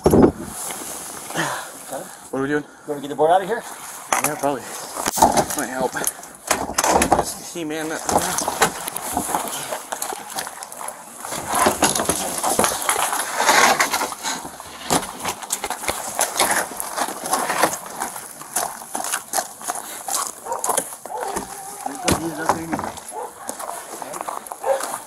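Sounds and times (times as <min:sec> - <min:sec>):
knocks and clatter: 0:05.0 - 0:05.9, 0:06.5 - 0:07.4, 0:11.3 - 0:16.7, 0:22.1 - 0:23.2
plastic tarp rustling: 0:06.6 - 0:25.0.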